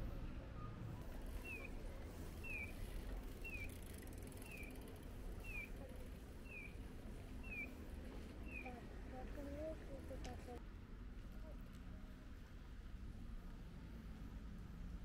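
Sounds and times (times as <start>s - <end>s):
low traffic rumble: 0.0s - 15.0s
crossing signal bird-like chirp: 2.4s - 2.8s, 6.4s - 6.8s, 7.4s - 7.8s.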